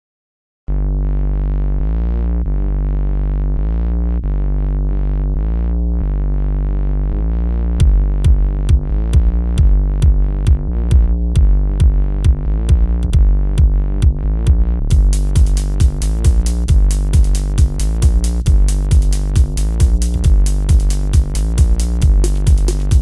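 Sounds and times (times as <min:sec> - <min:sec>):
deep bass: 0:00.7 - 0:23.0
synthesizer chords: 0:00.7 - 0:23.0
drum machine beat: 0:07.8 - 0:23.0.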